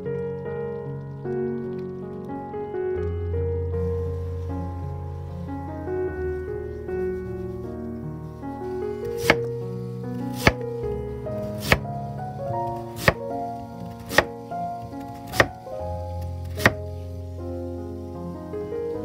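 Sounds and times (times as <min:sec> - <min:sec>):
soft background music: 0:00.0 - 0:19.0
knife chopping on wooden board: 0:09.2 - 0:09.5, 0:10.4 - 0:10.6, 0:11.6 - 0:11.9, 0:13.0 - 0:13.2, 0:14.1 - 0:14.3, 0:15.3 - 0:15.6, 0:16.5 - 0:16.9.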